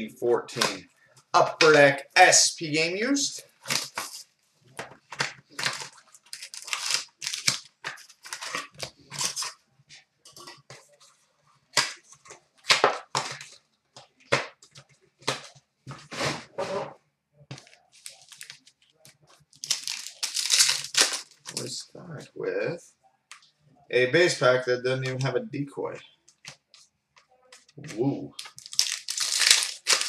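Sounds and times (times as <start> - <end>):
wrappers crinkling: 3.4 - 4.2, 5.0 - 9.6, 17.5 - 21.8, 27.5 - 30.0.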